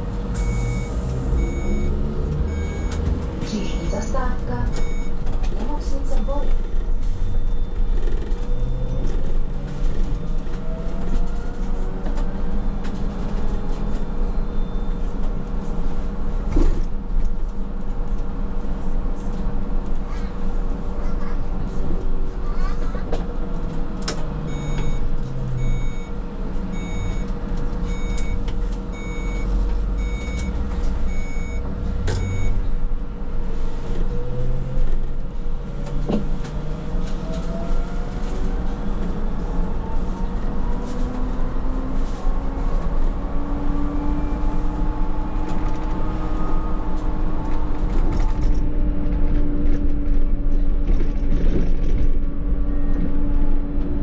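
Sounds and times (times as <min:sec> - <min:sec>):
electronic warning beep: 0:00.4 - 0:05.2, 0:24.5 - 0:26.2, 0:26.8 - 0:27.3, 0:27.9 - 0:28.4, 0:29.0 - 0:31.6, 0:32.2 - 0:32.6.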